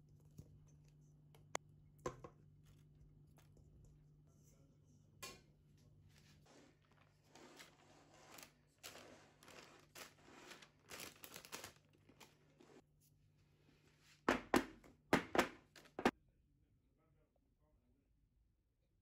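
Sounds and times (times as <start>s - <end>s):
spatula scraping cake batter: 6.1s - 10.9s, 12.1s - 12.8s.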